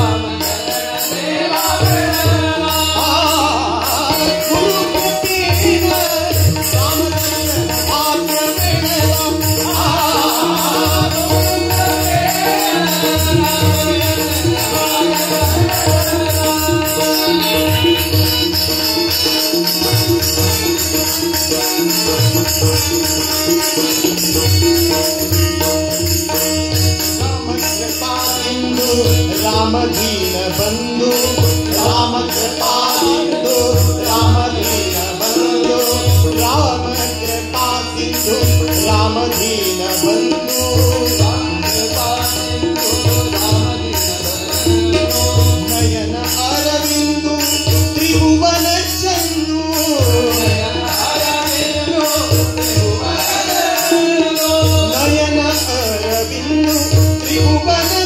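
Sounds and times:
voices singing: 0:00.0 - 0:19.9, 0:27.8 - 0:46.4, 0:49.2 - 0:55.7
harmonium held tones: 0:00.0 - 0:58.0
tabla rhythm: 0:00.0 - 0:58.0.

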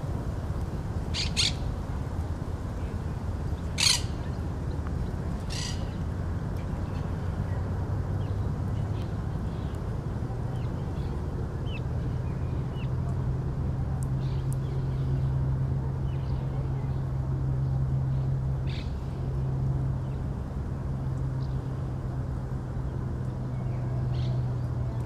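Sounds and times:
airplane engine drone: 0:00.0 - 0:25.0
small birds chirping: 0:01.1 - 0:01.7, 0:03.6 - 0:04.4
parrot squawks: 0:03.8 - 0:04.1.

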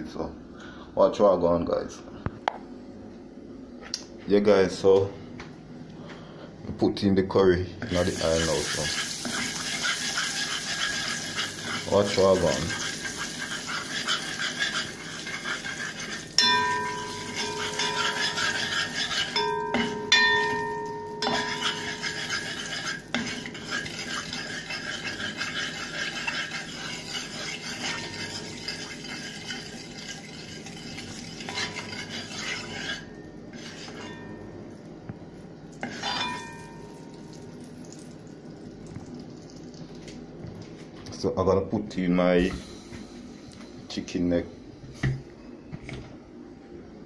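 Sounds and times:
metal spoon scraping a pot: 0:07.8 - 0:34.4, 0:35.8 - 0:36.8
spices sizzling in hot oil: 0:07.9 - 0:33.0
spoon clanging against pot: 0:16.4 - 0:22.9, 0:27.7 - 0:28.8, 0:35.8 - 0:37.2.

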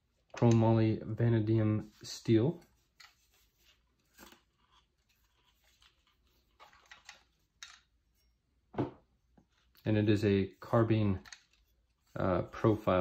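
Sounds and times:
hands handling a gun: 0:02.6 - 0:08.0.

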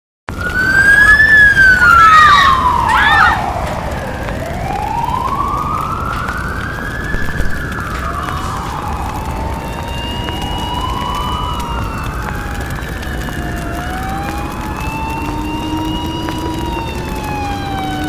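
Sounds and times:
emergency vehicle siren wailing: 0:00.3 - 0:18.0.

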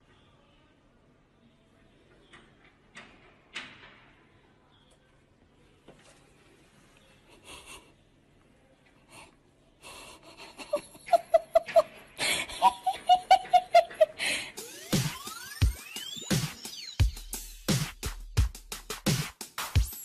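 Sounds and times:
person laughing: 0:10.0 - 0:14.7
electronic music with heavy bass: 0:14.6 - 0:20.0.

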